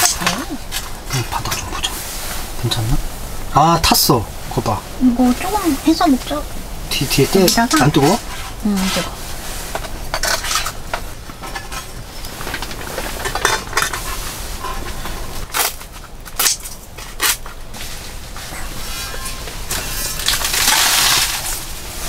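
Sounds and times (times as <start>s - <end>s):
utensils scraping a pan: 7.5s - 10.8s, 17.8s - 21.7s.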